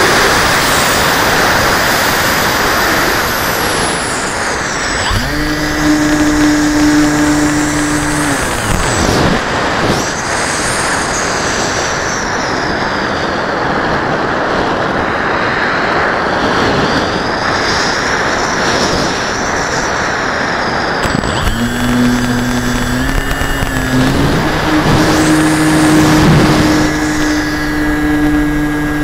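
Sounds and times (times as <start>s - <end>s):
model airplane motor: 0.0s - 12.6s, 21.0s - 29.0s
faint high whine: 0.0s - 13.6s, 20.7s - 29.0s.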